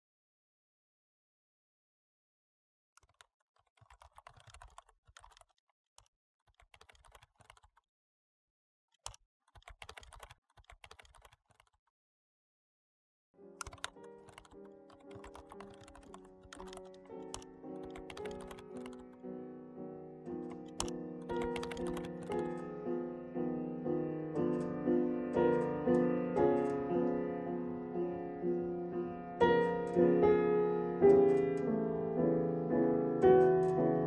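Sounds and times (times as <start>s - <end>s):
laptop keyboard typing: 3.0s - 7.8s, 9.0s - 11.8s, 13.4s - 19.3s, 20.3s - 22.8s, 24.4s - 26.9s, 29.4s - 30.1s, 31.0s - 31.7s
music with held notes: 13.4s - 34.0s.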